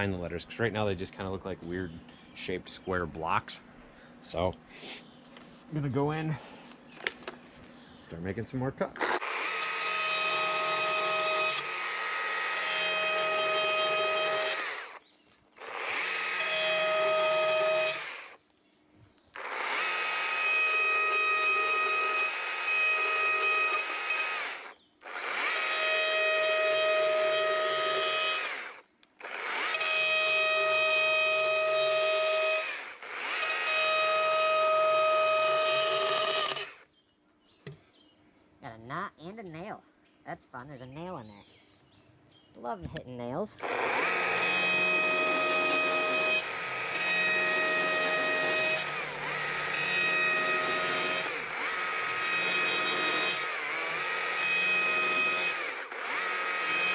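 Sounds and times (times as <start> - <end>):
chainsaw cutting wood: 9.0 - 15.0, 15.6 - 18.4, 19.4 - 36.9, 43.6 - 56.9.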